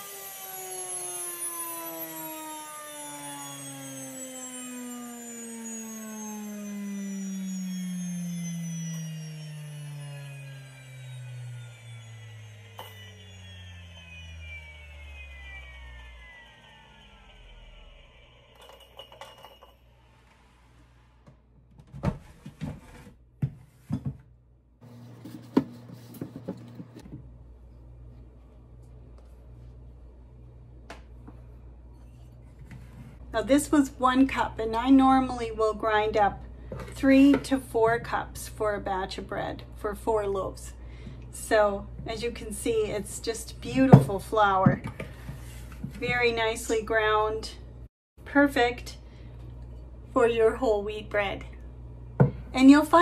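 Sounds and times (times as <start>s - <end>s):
electric grain mill whining: 0.0s - 21.5s, 24.8s - 27.3s.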